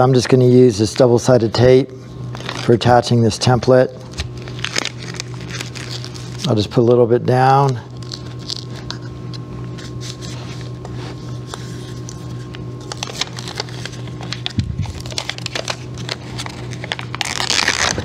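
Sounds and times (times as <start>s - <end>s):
tape ripping: 2.3s - 2.8s, 4.0s - 6.5s, 12.8s - 18.0s
sticky tape crackling: 2.3s - 2.9s, 4.0s - 6.6s, 7.5s - 18.0s.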